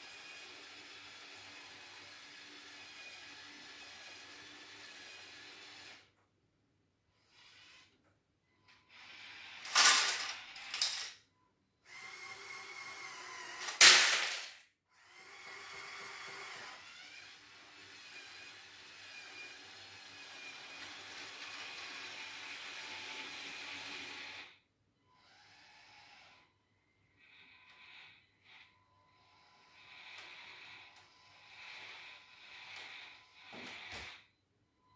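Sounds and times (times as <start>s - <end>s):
electric motors and gears whirring: 0.0s - 6.2s, 7.1s - 11.1s, 11.8s - 14.3s, 14.9s - 34.4s
plastic bricks clattering: 9.6s - 11.2s, 13.6s - 14.6s.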